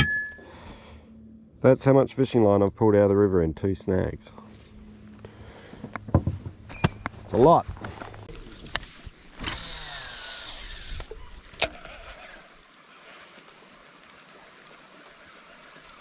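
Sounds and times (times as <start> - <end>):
fishing reel spool whirring: 9.3 - 16.0.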